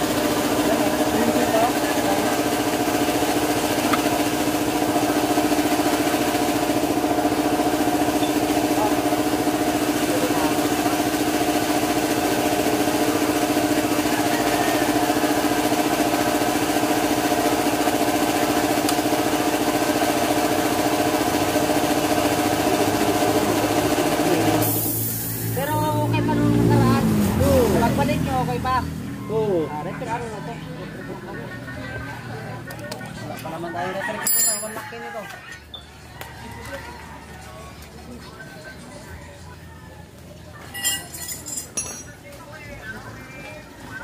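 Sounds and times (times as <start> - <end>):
motor humming steadily: 0.0 - 27.1.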